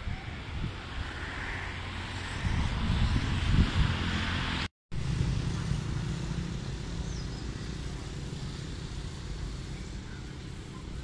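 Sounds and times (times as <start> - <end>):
wind and water noise: 0.0 - 11.0
boat engine humming: 5.0 - 11.0.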